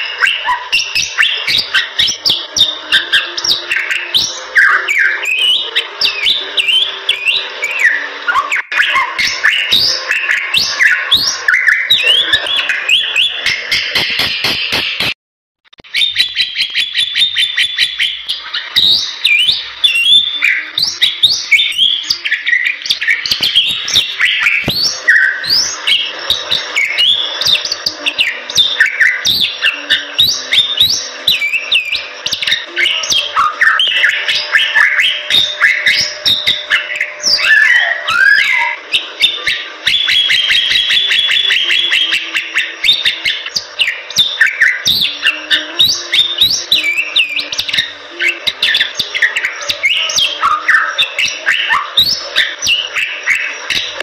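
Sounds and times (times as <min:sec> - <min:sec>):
bird singing whistled chattering notes: 0:00.0 - 0:15.1, 0:15.8 - 0:54.0.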